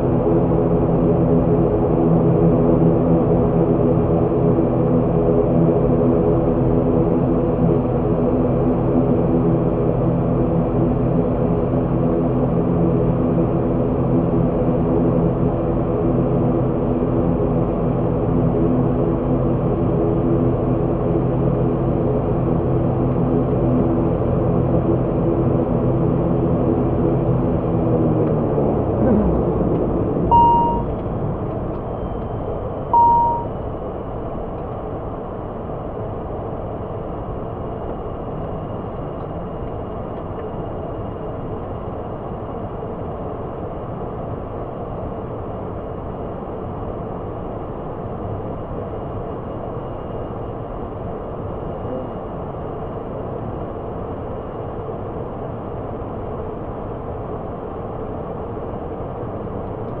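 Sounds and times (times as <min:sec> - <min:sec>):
turboprop engines running: 0:00.0 - 1:00.0
short electronic beeps: 0:30.3 - 0:30.9, 0:32.9 - 0:33.5.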